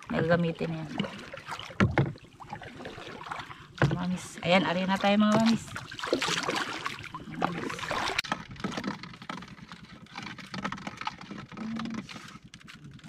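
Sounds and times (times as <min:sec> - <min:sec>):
fishing gear clicking and knocking: 0:01.6 - 0:02.4, 0:05.0 - 0:13.0.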